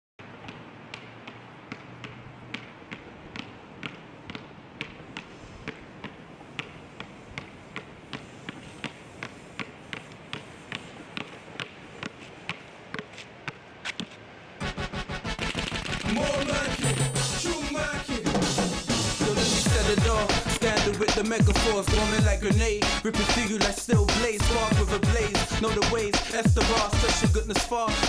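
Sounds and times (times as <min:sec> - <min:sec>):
basketball bouncing: 0:00.2 - 0:14.2
background noise: 0:00.2 - 0:28.0.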